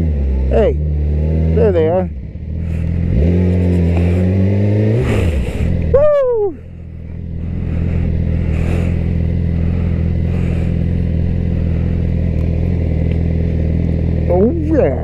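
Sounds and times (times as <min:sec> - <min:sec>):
motorcycle engine running at low revs: 0:00.0 - 0:15.0.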